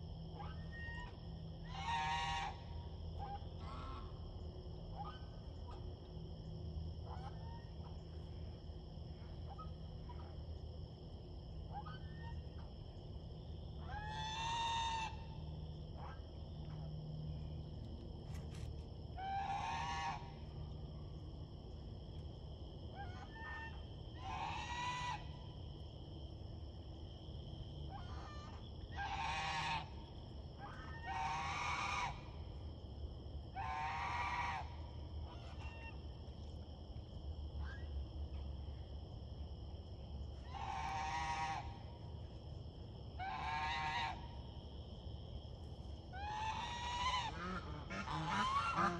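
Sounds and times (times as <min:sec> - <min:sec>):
goose honking: 0:01.7 - 0:02.6, 0:19.2 - 0:20.3, 0:29.0 - 0:29.9, 0:30.7 - 0:32.2, 0:46.2 - 0:48.9.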